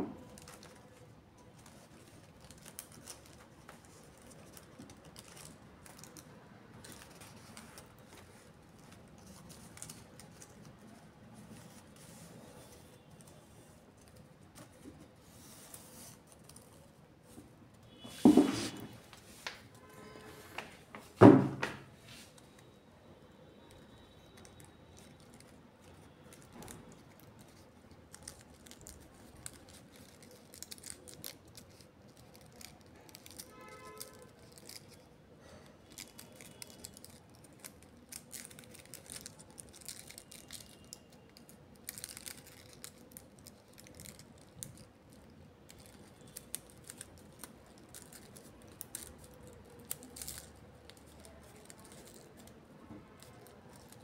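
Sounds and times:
small things clicking and rustling: 0.2s - 11.0s, 23.7s - 54.0s
loud thump: 21.2s - 21.8s.

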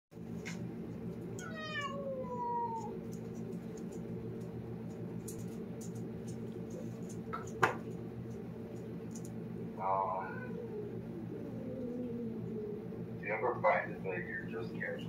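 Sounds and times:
steady low hum: 0.2s - 15.0s
cat meowing: 1.4s - 3.0s, 9.9s - 11.0s.

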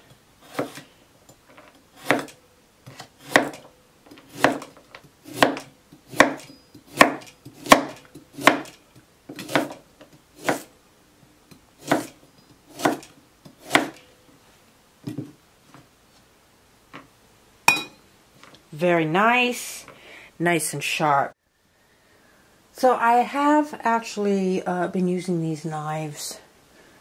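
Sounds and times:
knife slicing carrot on board: 0.4s - 0.8s, 2.0s - 3.6s, 4.3s - 9.8s, 10.4s - 10.7s, 11.8s - 14.0s.

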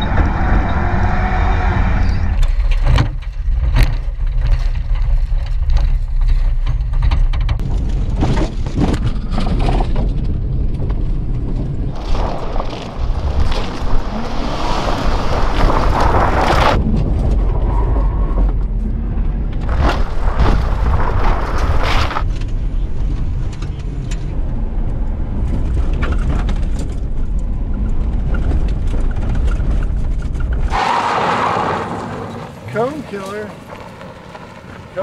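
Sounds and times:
tyres on gravel: 11.9s - 17.4s, 19.6s - 23.8s, 28.2s - 35.0s.

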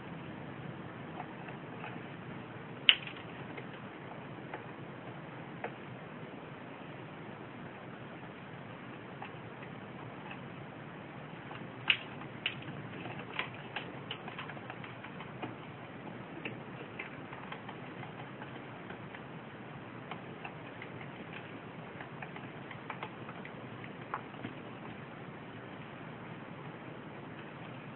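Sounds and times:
doves pecking seed clicks: 1.1s - 5.8s, 11.3s - 25.7s.

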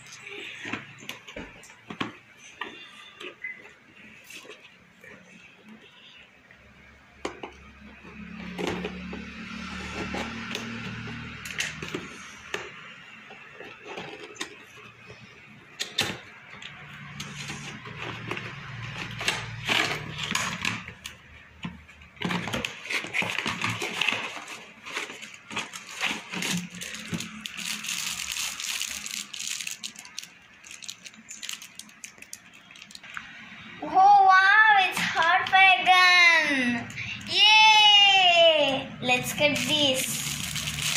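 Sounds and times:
packaging rustling: 22.1s - 33.2s, 39.6s - 40.9s.

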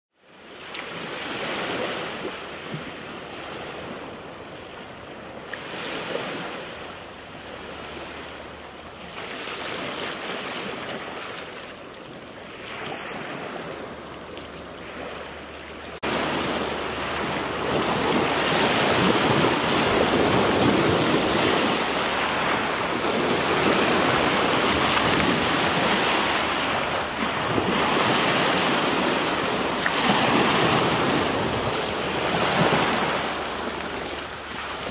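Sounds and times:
waves breaking on shingle shore: 9.0s - 15.3s, 15.9s - 34.9s.

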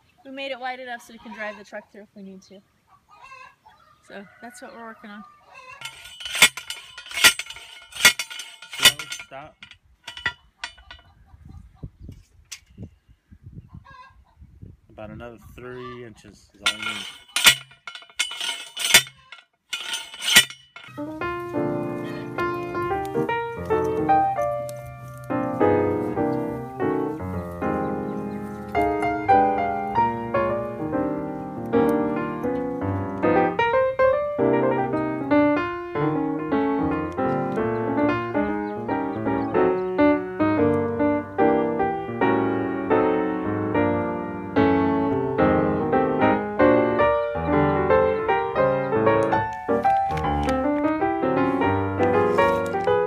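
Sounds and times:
piano music: 20.8s - 53.0s.

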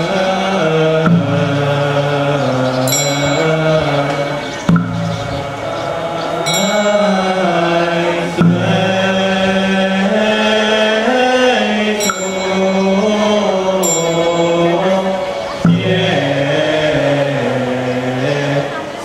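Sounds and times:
monk chanting over microphone: 0.0s - 19.0s
sharp struck notes: 0.8s - 10.4s, 12.0s - 17.2s.

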